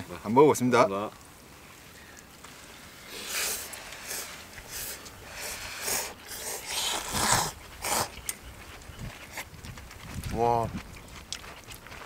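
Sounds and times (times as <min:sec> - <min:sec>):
noodles being slurped: 0:03.0 - 0:08.4.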